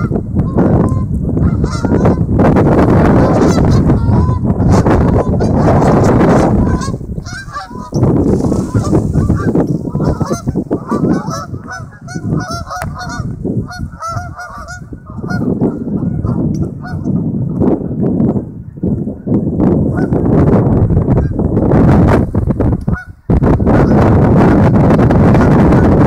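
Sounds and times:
geese honking: 0:00.0 - 0:02.2, 0:03.0 - 0:17.1, 0:22.9 - 0:24.0.

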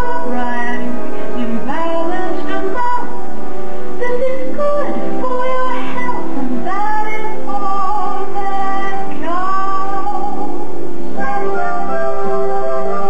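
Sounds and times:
woman singing: 0:00.0 - 0:03.2, 0:04.0 - 0:10.6
instrumental music: 0:00.0 - 0:13.0.

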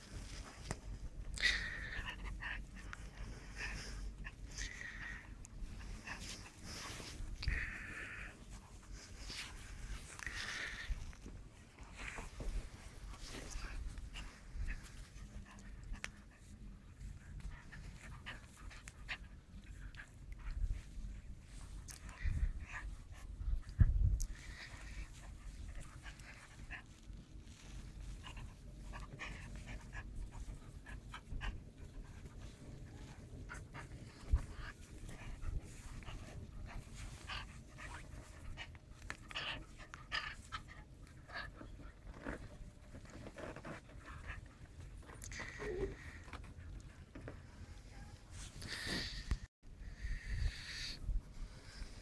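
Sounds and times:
puppy panting: 0:00.1 - 0:49.2.

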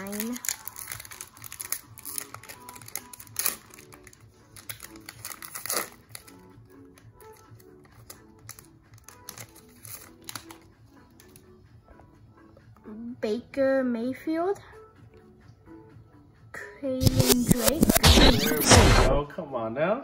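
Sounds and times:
foil wrapper crinkling and tearing: 0:00.0 - 0:11.4
quiet background music: 0:00.0 - 0:20.0.

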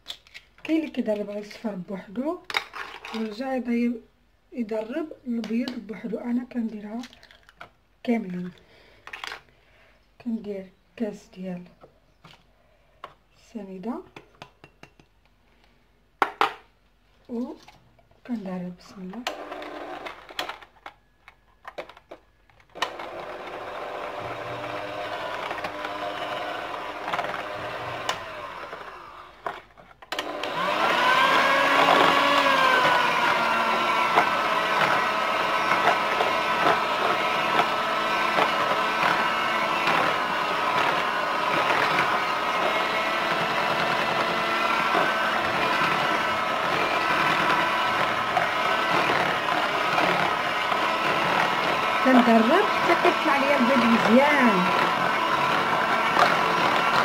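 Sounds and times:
electric hand mixer whirring: 0:19.2 - 0:20.4, 0:22.8 - 0:57.0.

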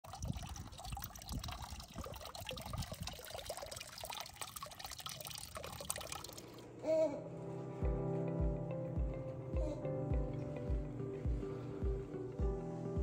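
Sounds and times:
water trickling into pond: 0:00.0 - 0:06.6.

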